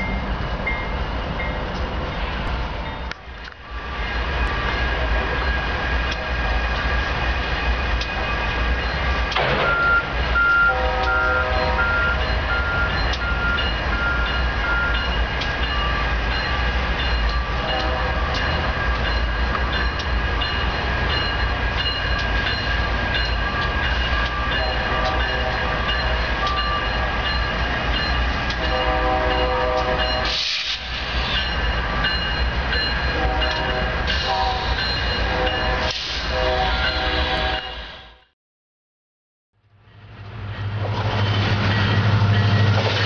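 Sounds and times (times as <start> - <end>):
distant train horn chord: 10.4 - 12.4, 17.6 - 18.4, 24.6 - 26.2, 28.6 - 30.4, 33.1 - 38.3.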